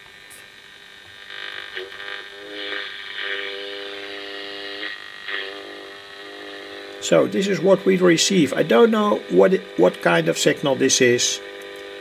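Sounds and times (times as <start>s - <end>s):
steady interference tone: 0.0s - 12.0s
radio hiss from loudspeaker: 6.9s - 12.0s.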